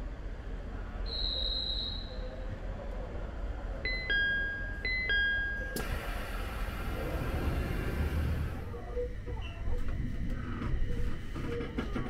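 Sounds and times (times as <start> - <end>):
train humming: 2.6 - 12.0.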